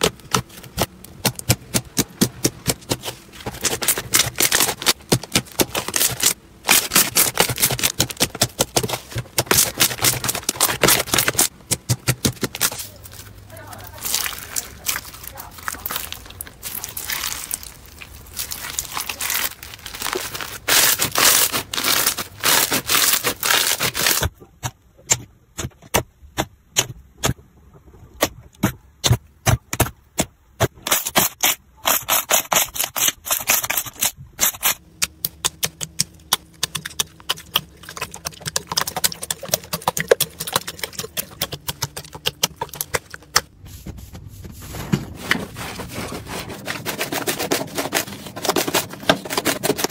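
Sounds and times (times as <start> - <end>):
crunchy slime crackling: 0.0 - 24.3, 33.0 - 43.6.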